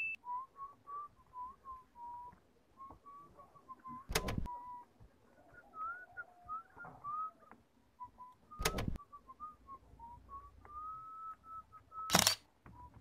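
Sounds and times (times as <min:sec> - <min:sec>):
person whistling a tune: 0:00.0 - 0:04.9, 0:08.0 - 0:12.1.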